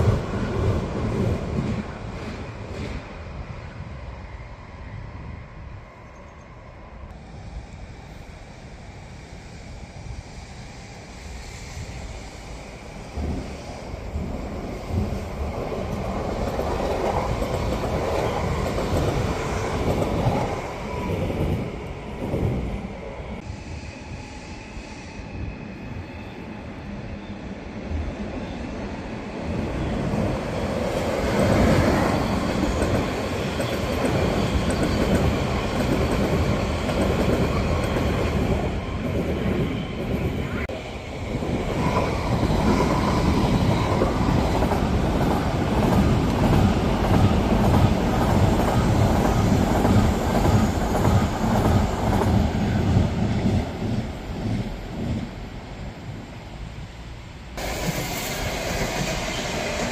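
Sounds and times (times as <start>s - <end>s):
clickety-clack of train wheels: 0.0s - 3.2s, 13.2s - 22.7s, 29.5s - 40.7s, 41.4s - 55.4s, 57.6s - 59.9s
train wheels rumbling on rails: 0.0s - 59.9s.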